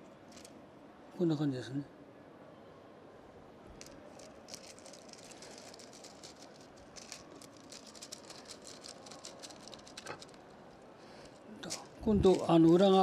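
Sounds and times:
wooden strips clicking and rattling: 3.8s - 10.4s.

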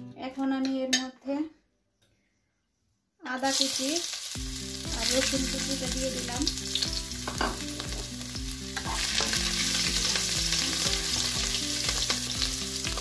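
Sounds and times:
ginger and garlic sizzling in oil: 3.2s - 13.0s.

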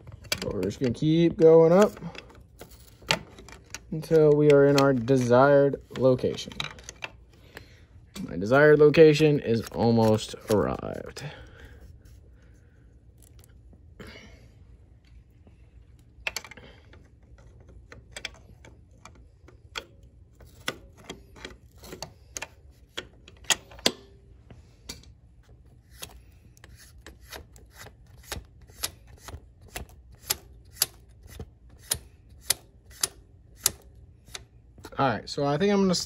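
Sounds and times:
wrench clicking on metal: 25.9s - 34.5s.

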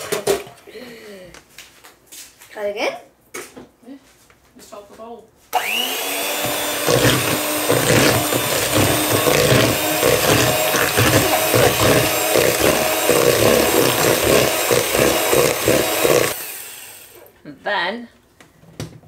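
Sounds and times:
electric hand mixer running: 5.6s - 17.2s.

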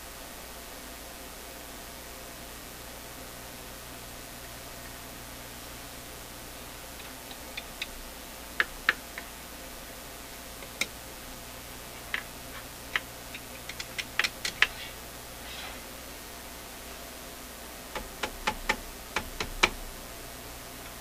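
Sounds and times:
stick tapping amplifier parts: 7.0s - 9.4s, 10.6s - 11.0s, 11.8s - 14.8s, 17.9s - 19.9s.

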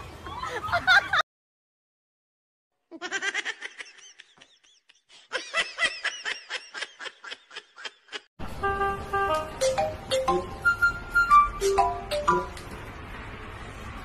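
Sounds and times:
person giggling: 2.9s - 8.3s.

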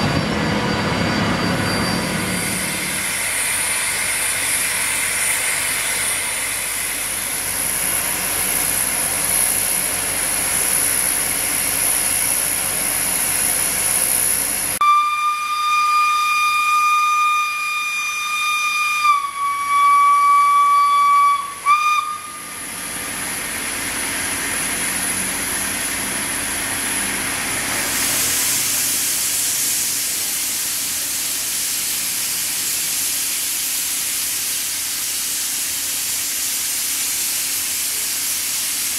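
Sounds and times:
steam locomotive hissing: 0.0s - 38.9s
steam whistle blast: 14.8s - 22.6s.

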